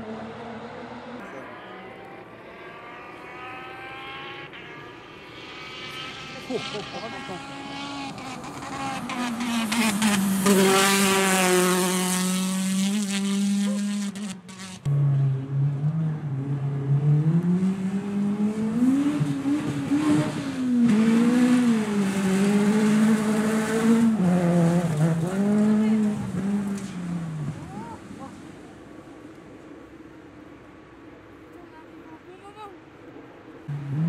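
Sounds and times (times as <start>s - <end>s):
engine revs rising and dropping: 0.0s - 27.4s, 33.7s - 34.0s
rally car engine at high revs: 0.0s - 28.4s, 33.7s - 34.0s.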